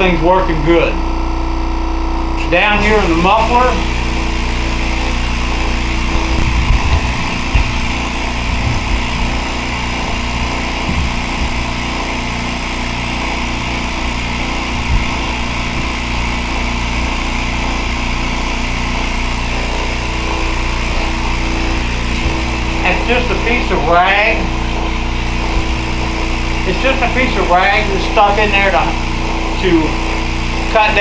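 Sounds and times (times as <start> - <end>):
vacuum pump humming: 0.0 - 31.0.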